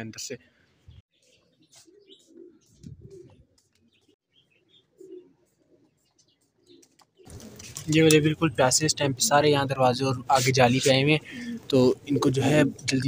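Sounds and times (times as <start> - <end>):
pigeons cooing: 1.2 - 8.0, 10.3 - 13.0.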